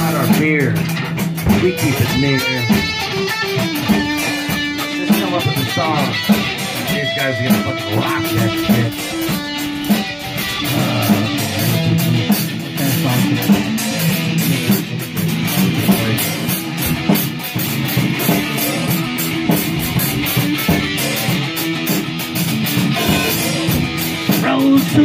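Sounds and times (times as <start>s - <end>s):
drum and cymbal hits: 0.0s - 25.0s
electric guitar: 0.0s - 25.0s.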